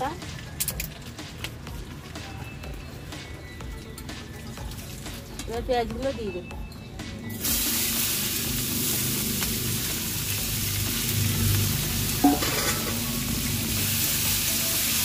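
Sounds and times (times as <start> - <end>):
onions sizzling in oil: 7.3 - 15.0
metallic clank: 12.2 - 13.1.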